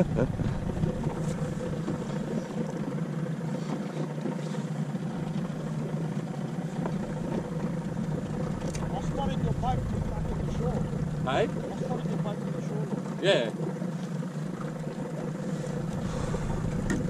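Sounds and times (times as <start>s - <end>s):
outboard motor droning: 0.0s - 17.0s.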